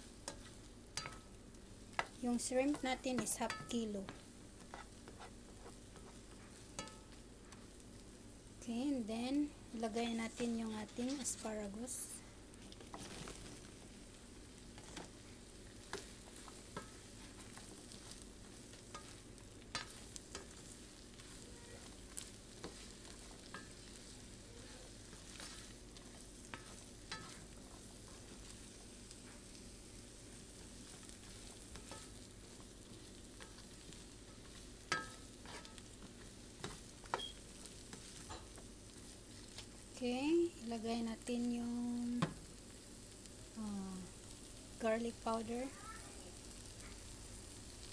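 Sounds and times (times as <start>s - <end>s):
food sizzling in a frying pan: 0.0s - 47.9s
spatula scraping and clicking on pan: 0.2s - 1.3s, 1.9s - 7.7s, 14.7s - 15.2s, 15.8s - 29.6s, 30.6s - 39.7s.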